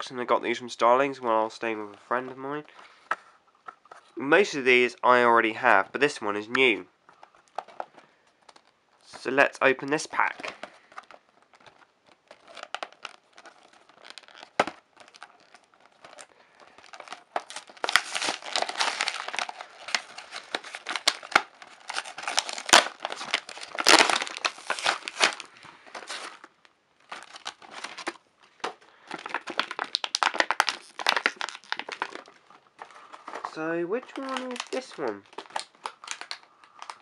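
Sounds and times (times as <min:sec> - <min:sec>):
packaging crinkling and tearing: 0:07.1 - 0:09.2, 0:09.8 - 0:37.0.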